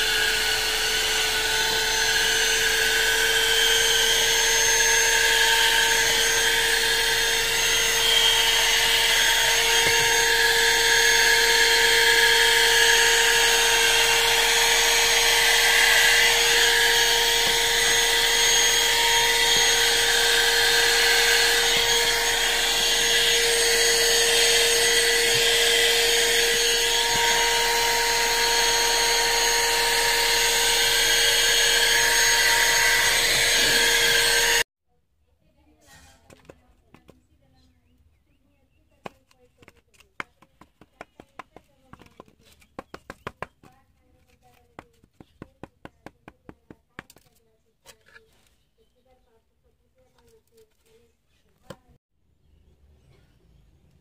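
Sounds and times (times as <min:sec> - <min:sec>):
handheld vacuum cleaner whining: 0:00.0 - 0:34.7, 0:39.0 - 0:47.4.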